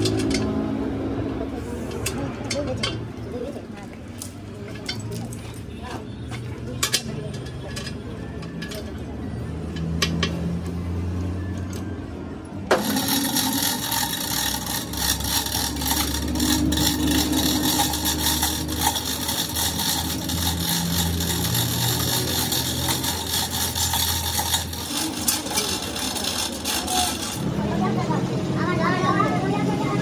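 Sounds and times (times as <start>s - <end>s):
chain hoist chain rattling: 12.7s - 27.6s.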